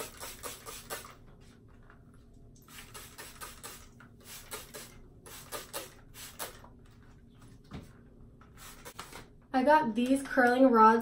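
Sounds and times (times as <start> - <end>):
spray bottle spritzes: 0.0 - 1.2, 2.6 - 6.7, 8.6 - 9.3.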